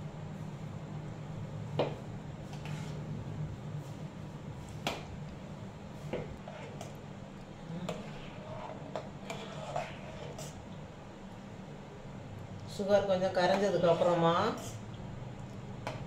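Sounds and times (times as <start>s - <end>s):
low steady hum: 0.0s - 16.0s
spatula scraping metal pan: 2.5s - 3.0s, 6.4s - 6.9s, 7.9s - 10.6s.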